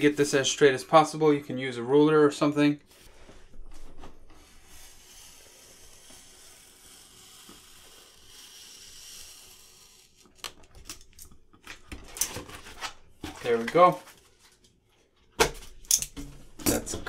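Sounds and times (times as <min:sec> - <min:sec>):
knife cutting vinyl hiss: 0:04.4 - 0:10.5
vinyl crinkling: 0:10.2 - 0:14.8.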